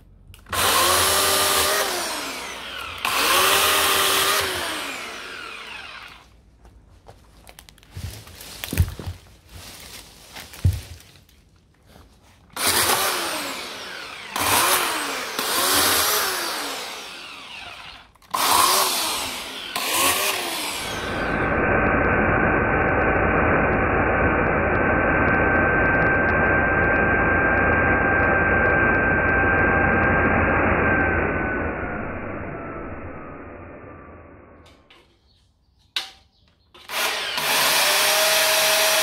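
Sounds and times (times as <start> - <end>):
electric chainsaw cutting branches: 0.5 - 6.4, 12.5 - 34.9, 36.8 - 39.0.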